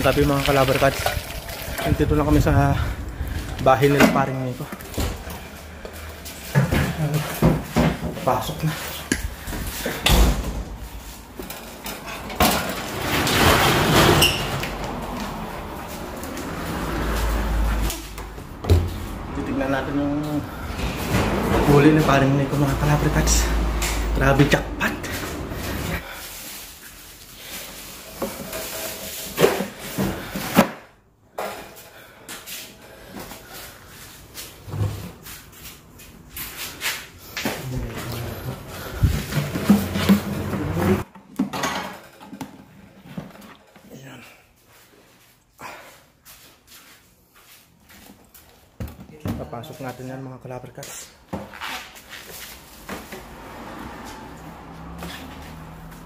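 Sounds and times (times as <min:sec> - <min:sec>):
knocks and clatter of handling: 0:11.3 - 0:15.3, 0:38.8 - 0:43.9.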